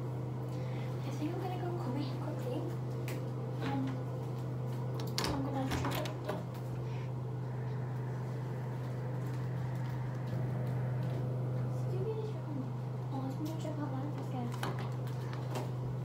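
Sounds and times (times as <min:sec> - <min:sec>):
exhaust fan humming: 0:00.0 - 0:16.0.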